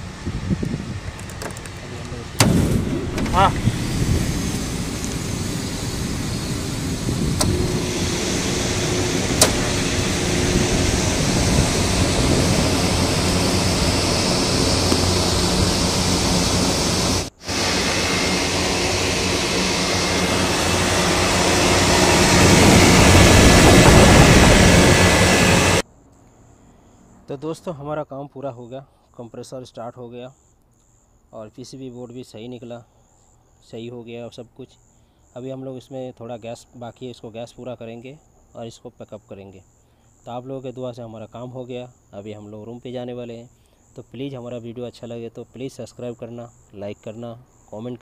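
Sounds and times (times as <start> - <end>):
compressor humming: 0.0 - 25.8
condenser fan rushing air: 0.0 - 25.8.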